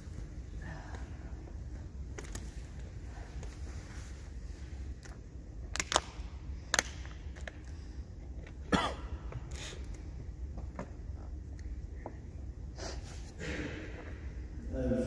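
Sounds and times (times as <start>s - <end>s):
steady low hum: 0.0s - 15.0s
person coughing: 8.7s - 9.2s.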